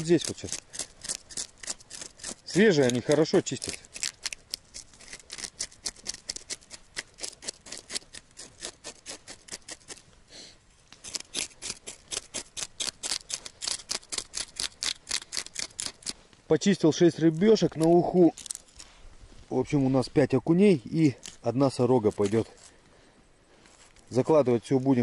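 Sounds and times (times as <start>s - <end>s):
fish scales being scraped: 0.0s - 10.0s, 11.0s - 16.2s, 17.2s - 19.0s.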